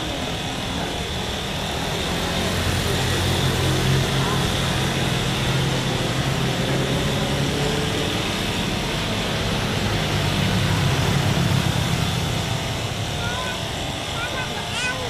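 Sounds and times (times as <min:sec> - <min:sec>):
jet engines rumbling: 0:00.0 - 0:15.0.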